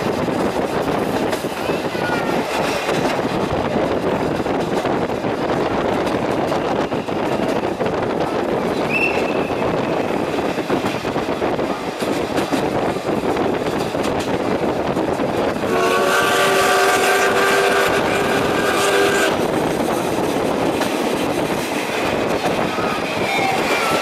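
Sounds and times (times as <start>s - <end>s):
rail joints clattering: 0.0s - 24.0s
train coaches rumbling: 0.0s - 24.0s
steam whistle blast: 15.7s - 19.4s.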